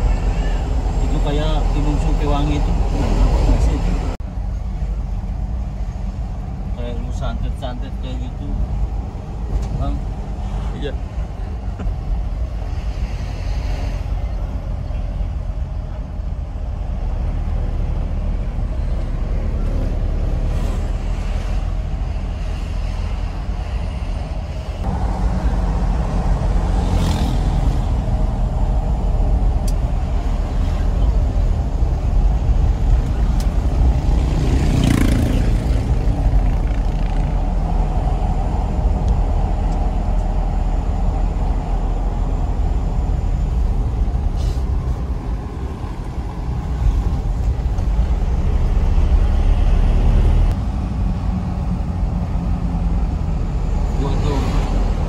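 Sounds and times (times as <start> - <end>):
diesel engine low rumble: 0.0 - 55.0
short hisses: 44.3 - 44.7.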